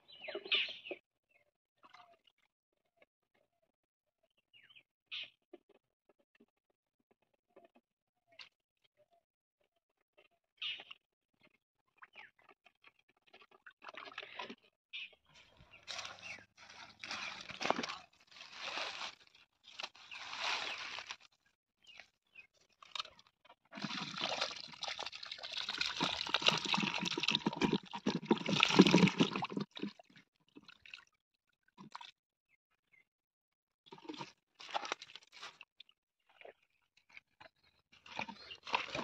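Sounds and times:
hands scooping wet mud: 15.4 - 30.1, 33.9 - 36.6, 37.2 - 39.0.

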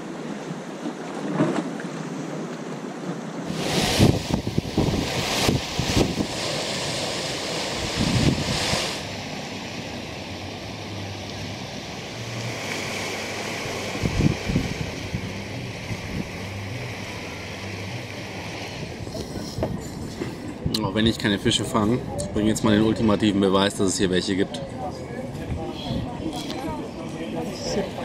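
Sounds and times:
surf washing on rocks: 0.0 - 21.9
wind gusting on microphone: 3.4 - 10.7, 11.6 - 23.0.

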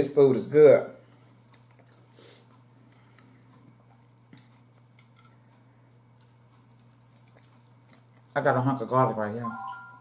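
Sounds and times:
steady low hum: 0.0 - 10.0
soft chewing: 1.0 - 8.6.

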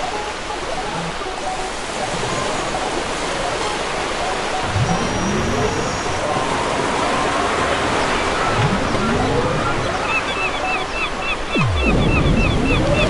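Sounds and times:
steady rushing noise: 11.6 - 13.0.

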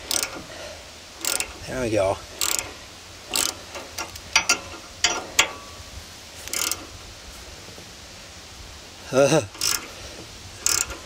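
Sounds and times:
ratchet wrench clicking: 0.0 - 0.5, 1.2 - 1.6, 2.3 - 5.6, 6.4 - 6.9, 9.5 - 9.9, 10.6 - 11.0.

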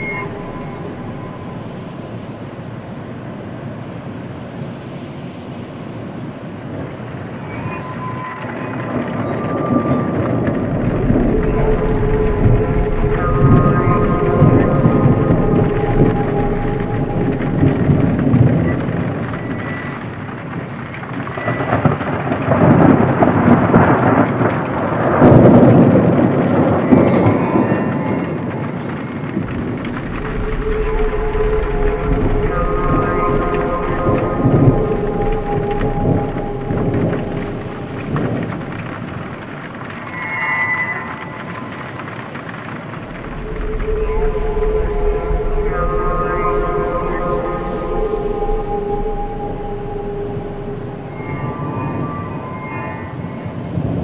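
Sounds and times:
faint held tones: 0.0 - 2.6, 10.4 - 20.0, 29.4 - 39.5, 43.0 - 53.6
thunder rumbling: 0.0 - 3.3, 6.4 - 54.0
dark ambient drone music: 0.0 - 54.0
rain: 0.0 - 54.0.

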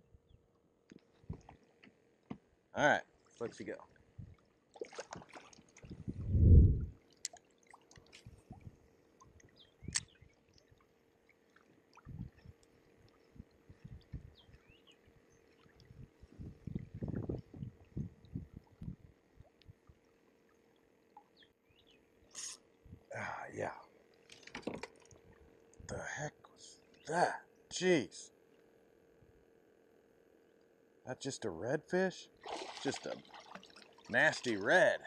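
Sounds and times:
water splashing: 3.3 - 6.2, 32.4 - 34.8
kayak hull thumping on water: 24.3 - 25.0.

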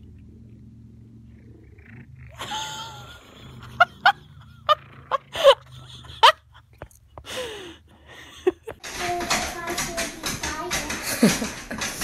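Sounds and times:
woman laughing: 2.4 - 8.8.

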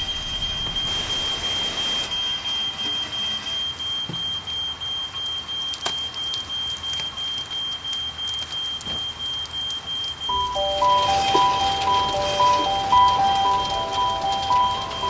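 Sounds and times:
fire alarm steady tone: 0.0 - 15.0
sprinklers spraying water: 5.2 - 15.0.

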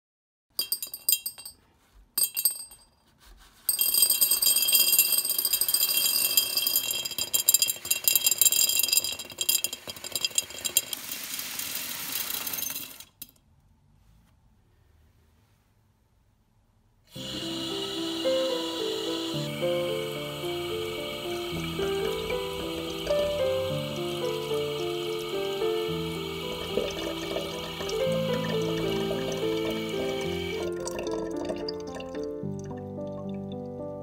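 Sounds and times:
beans clattering into glass jar: 3.7 - 13.3, 21.2 - 31.6.

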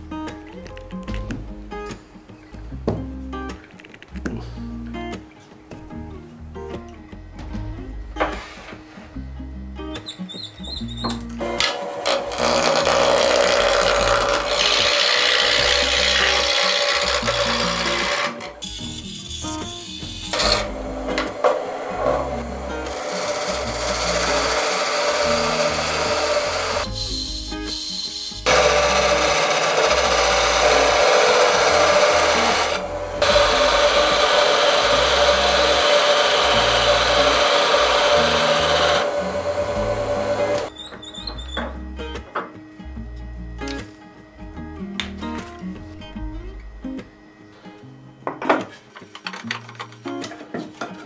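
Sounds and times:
background music with low bass: 0.0 - 11.7, 17.0 - 24.6, 30.4 - 48.3
wood lathe tool shaving wood: 11.4 - 18.7, 20.0 - 40.7.

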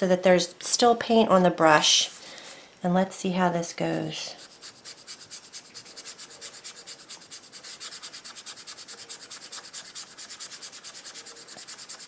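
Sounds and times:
dry brush scrubbing surface: 4.4 - 12.0.

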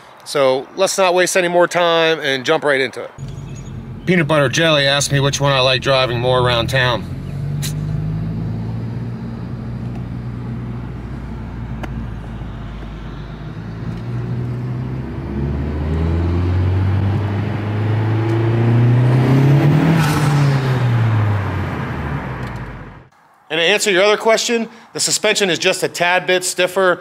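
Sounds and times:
turbo whoosh: 3.2 - 16.7
car engine revving: 3.2 - 23.1.

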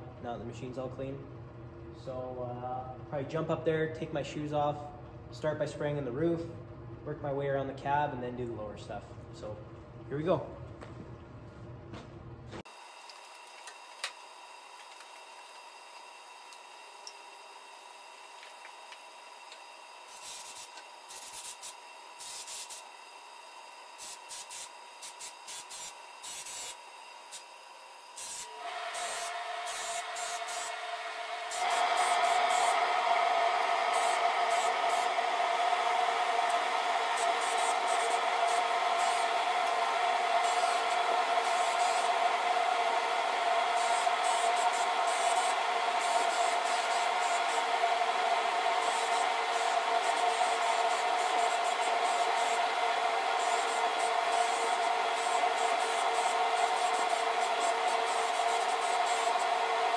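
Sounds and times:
paint spray gun hissing: 20.1 - 22.9, 24.0 - 27.4, 28.2 - 35.5, 36.2 - 42.3, 43.4 - 47.7, 48.7 - 59.9
steady tone: 28.5 - 59.9.

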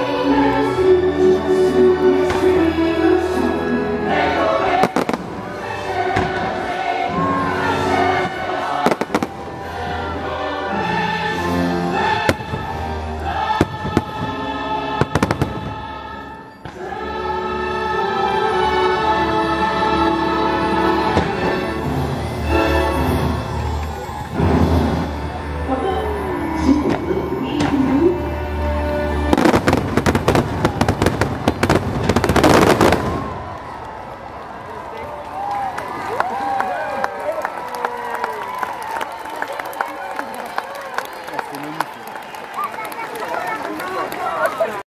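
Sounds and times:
choir singing: 0.0 - 33.5
orchestral music: 0.0 - 34.4
fireworks bursting: 4.6 - 6.8, 8.0 - 9.7, 15.0 - 15.9, 29.3 - 33.9.

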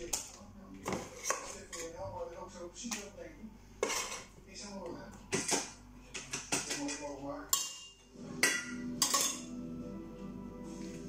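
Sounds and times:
dishes and utensils clinking: 0.0 - 2.1, 3.8 - 4.4, 5.3 - 9.6.

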